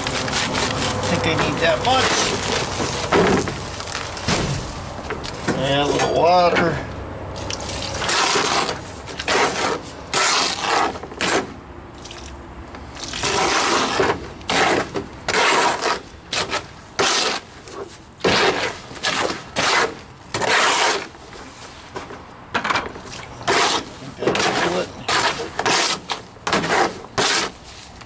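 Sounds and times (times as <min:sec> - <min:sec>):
trowel scraping mortar in tub: 0:00.0 - 0:03.4, 0:07.5 - 0:11.6, 0:13.0 - 0:21.2, 0:23.1 - 0:27.9.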